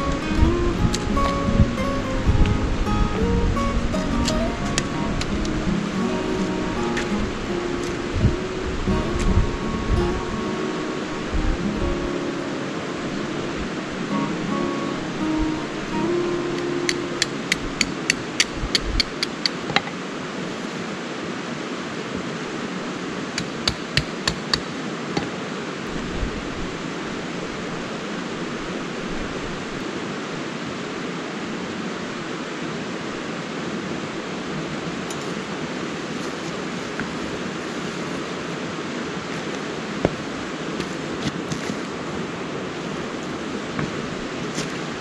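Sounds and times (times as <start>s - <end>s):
river flowing: 0.0s - 45.0s
hammer blows on tent stakes: 23.4s - 25.3s.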